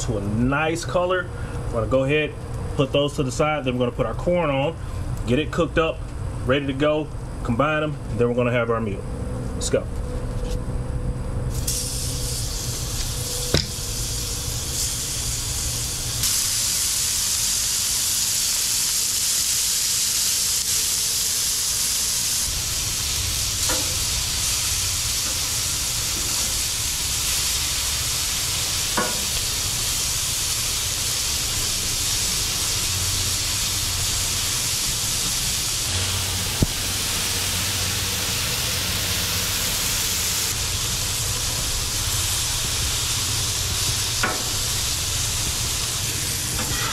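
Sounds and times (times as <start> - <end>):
meat sizzling on a griddle: 11.5 - 46.9.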